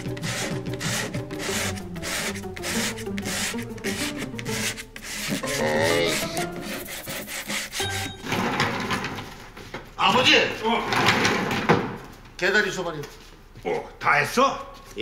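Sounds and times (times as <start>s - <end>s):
sandpaper scrubbing wood: 0.0s - 7.9s.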